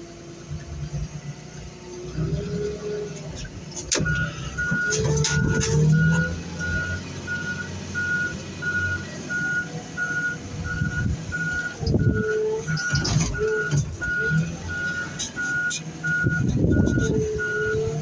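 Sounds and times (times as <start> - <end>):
engine running: 0.0 - 18.0
backup alarm beeping: 4.0 - 17.9.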